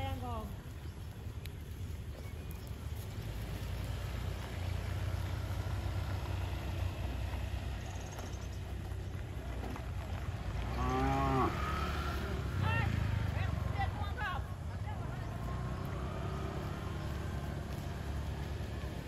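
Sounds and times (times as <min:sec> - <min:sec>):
cow mooing: 0:10.7 - 0:12.4.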